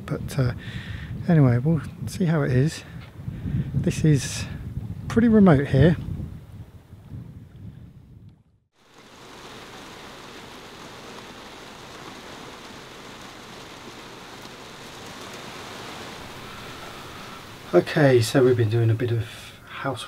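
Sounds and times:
rain on canvas awning: 8.7 - 19.6.

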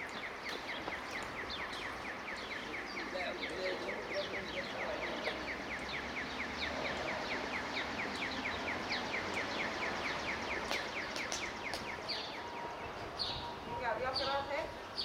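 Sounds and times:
sharp clicks: 10.6 - 12.0.

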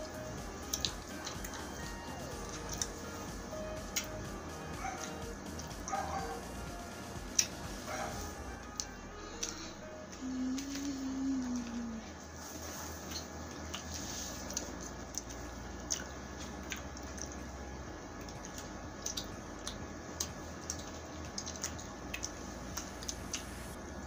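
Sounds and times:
wet chewing: 0.0 - 4.2, 7.3 - 9.7, 12.8 - 23.8
person humming: 0.0 - 12.3
lip and tongue smacks: 18.2 - 23.6.

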